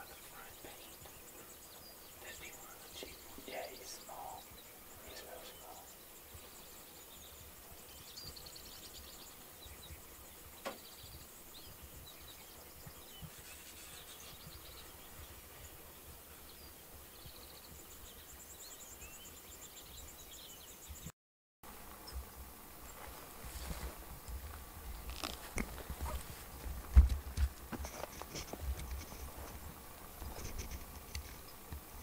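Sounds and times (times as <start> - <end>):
bird chirps and trills: 0.0 - 21.1.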